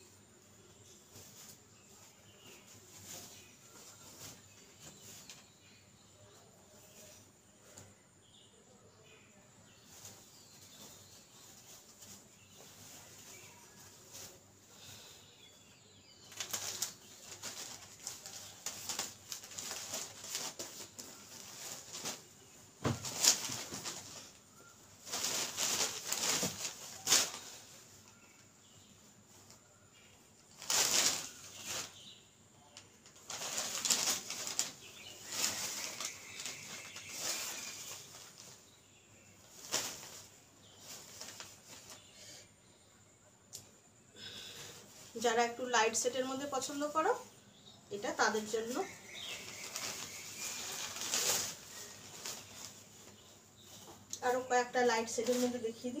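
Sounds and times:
cloth rustling and flapping: 0:16.2 - 0:28.8, 0:33.1 - 0:42.1, 0:48.2 - 0:54.1.

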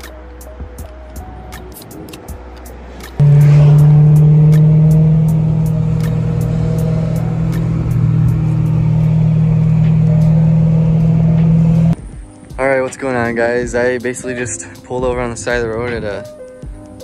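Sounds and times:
car engine drone in cabin: 0:03.2 - 0:12.0.

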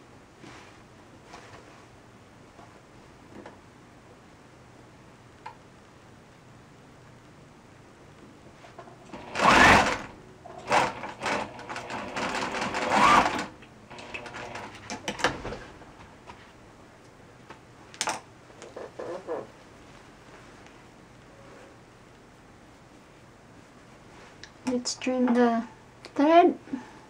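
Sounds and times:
electric sewing machine stitching: 0:09.0 - 0:15.4.

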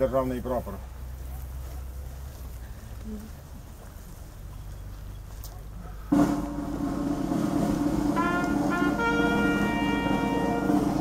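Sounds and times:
brass music: 0:06.1 - 0:11.0.

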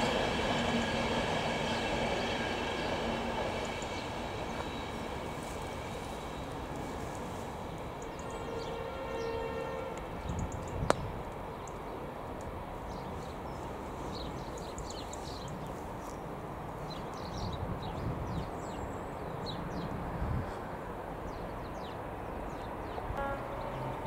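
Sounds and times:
diesel train rumble: 0:00.0 - 0:10.2, 0:23.0 - 0:24.0.

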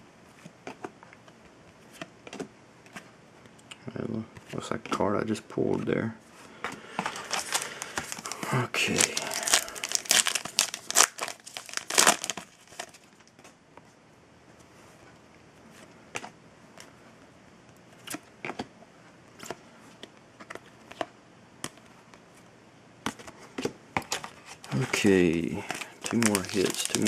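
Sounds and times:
cards clicking and rustling: 0:06.6 - 0:13.6, 0:23.0 - 0:27.0
wrapper tearing and crinkling: 0:07.1 - 0:13.0, 0:24.1 - 0:27.0.

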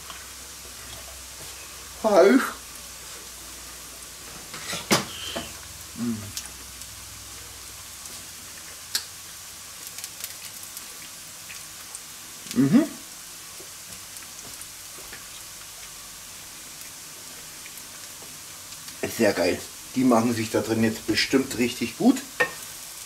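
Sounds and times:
sausage sizzling in a frying pan: 0:00.0 - 0:23.0
person's voice rising: 0:06.0 - 0:06.4, 0:12.5 - 0:13.1.

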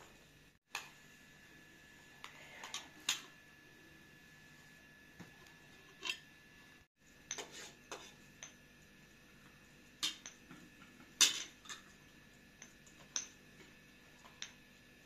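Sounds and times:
spoons clinking against plates: 0:07.2 - 0:08.6.

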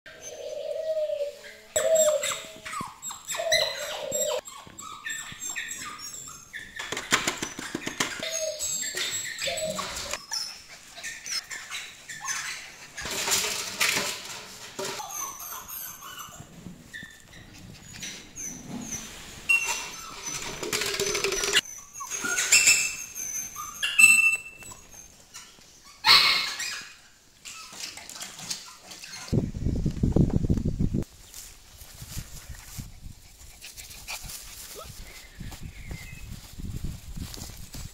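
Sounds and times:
puppies scrabbling on tile floor: 0:12.4 - 0:18.2, 0:19.8 - 0:22.9.

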